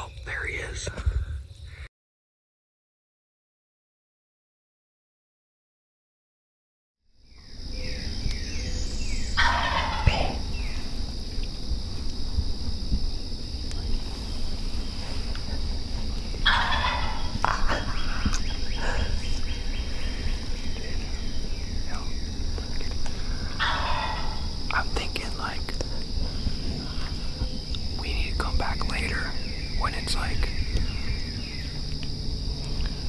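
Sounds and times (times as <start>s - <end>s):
wild turkey gobbling: 7.8s - 11.0s, 15.3s - 24.8s.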